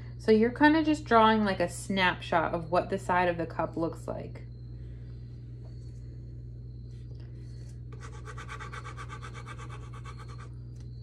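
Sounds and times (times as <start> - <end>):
steady low hum: 0.0 - 11.0
pen scratching on paper: 8.0 - 10.5.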